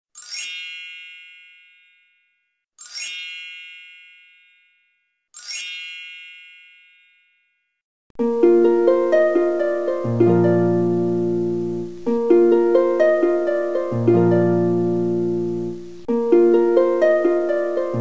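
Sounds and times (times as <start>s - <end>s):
bright bell-like chime: 0.2s - 7.8s
plucked-string music: 8.2s - 18.0s.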